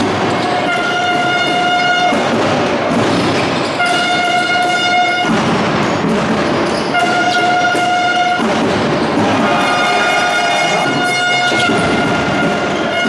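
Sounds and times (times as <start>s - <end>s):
hall and court noise: 0.0s - 13.0s
horn blasts: 0.6s - 2.3s, 3.8s - 5.4s, 6.8s - 8.5s, 9.1s - 13.0s.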